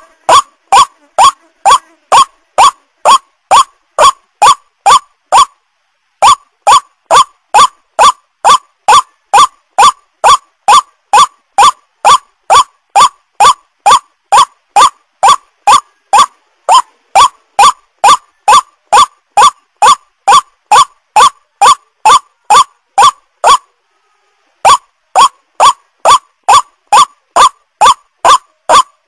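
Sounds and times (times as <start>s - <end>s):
waterhen calling: 0.3s - 5.5s.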